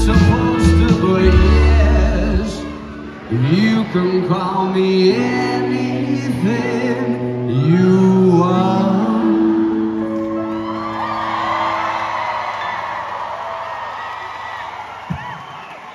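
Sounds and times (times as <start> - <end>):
person singing: 0.0 - 10.8
live rock band playing: 0.0 - 12.3
crowd whooping and cheering: 1.9 - 5.2, 9.8 - 15.9.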